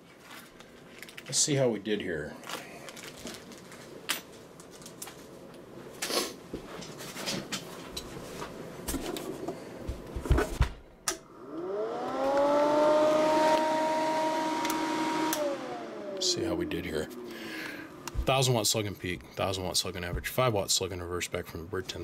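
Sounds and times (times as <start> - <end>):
small electric motor whine: 11.3 - 17.9.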